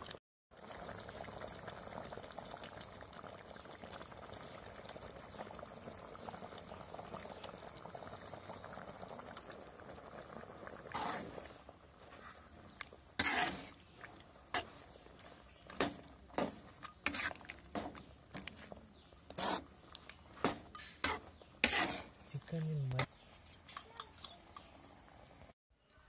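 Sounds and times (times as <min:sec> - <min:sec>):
curry bubbling in a pot: 0:00.0 - 0:25.6
ladle stirring and scraping: 0:10.7 - 0:25.1.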